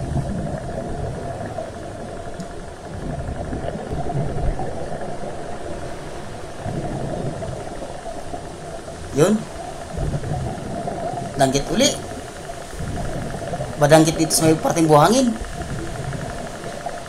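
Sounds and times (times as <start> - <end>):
underwater rumble and hiss: 0.0 - 17.0
soft low thumps: 2.1 - 13.9.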